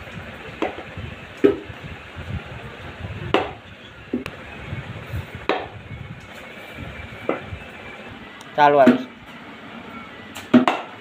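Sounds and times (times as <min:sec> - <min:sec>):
cricket bat striking ball: 0:03.3 - 0:03.6, 0:10.4 - 0:10.9.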